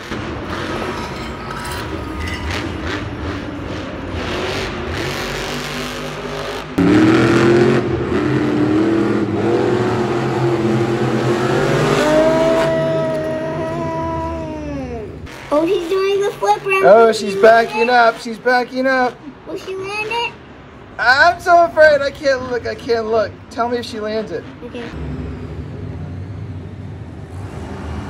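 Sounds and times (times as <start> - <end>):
truck engine revving: 0.0 - 21.7, 24.8 - 28.0
noisy arena background: 0.0 - 28.0.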